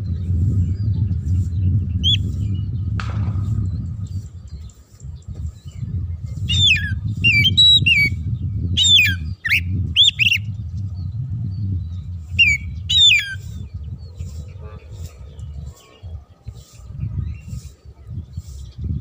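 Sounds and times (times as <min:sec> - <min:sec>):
bird singing whistled notes: 0:00.0 - 0:14.7
steady low rumble: 0:00.0 - 0:19.0.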